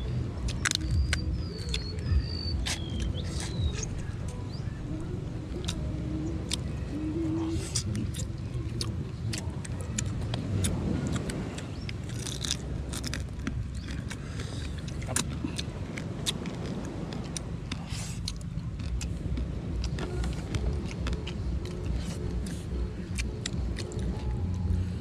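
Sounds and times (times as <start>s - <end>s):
chewing: 0.0s - 4.4s, 5.0s - 25.0s
steady low rumble: 0.0s - 25.0s
crab shells cracking: 12.0s - 22.4s.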